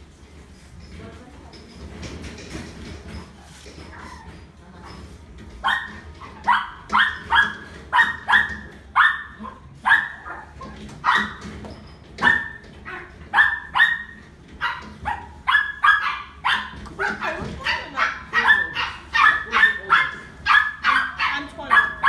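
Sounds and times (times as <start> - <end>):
puppy barking: 5.6 - 11.5, 12.2 - 22.0.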